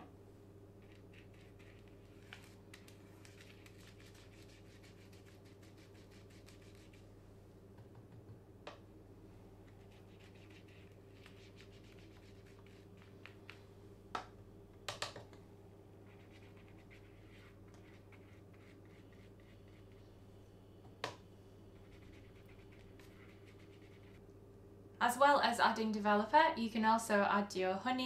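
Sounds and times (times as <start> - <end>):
low electrical hum: 0.0 - 28.0
paintbrush scratching on paper: 0.8 - 7.1, 9.8 - 13.3, 16.0 - 20.0, 21.8 - 24.2.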